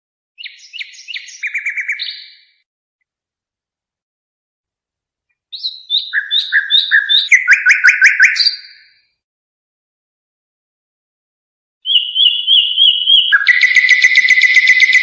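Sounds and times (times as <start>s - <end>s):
songbird singing: 0.4s - 2.7s, 5.3s - 9.0s, 11.8s - 15.0s.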